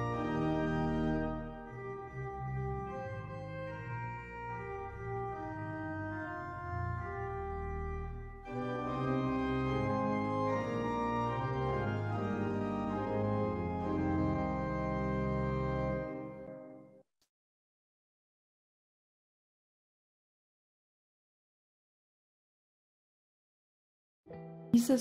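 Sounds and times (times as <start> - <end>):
organ playing slow chords: 0.0 - 17.0.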